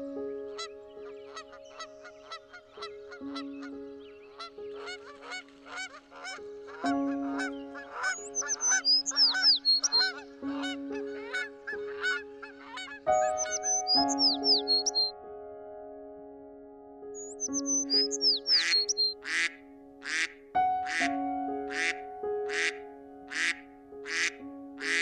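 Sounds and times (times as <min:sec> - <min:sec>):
background music with sustained chords: 0:00.0 - 0:25.0
high bird-like chirps: 0:07.4 - 0:15.1, 0:17.2 - 0:19.5.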